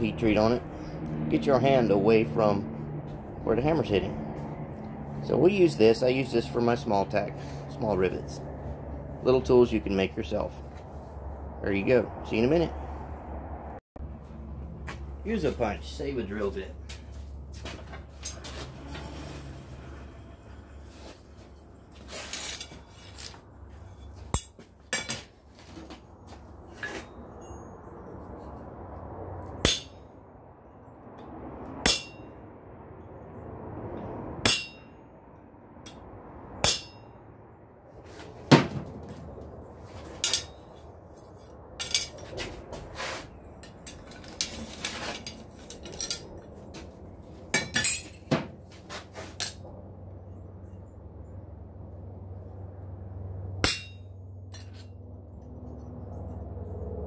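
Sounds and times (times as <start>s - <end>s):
faint steady rumble: 0.0s - 57.0s
hammer ringing on anvil: 31.8s - 32.4s, 34.4s - 35.0s, 36.6s - 37.2s, 53.6s - 54.2s.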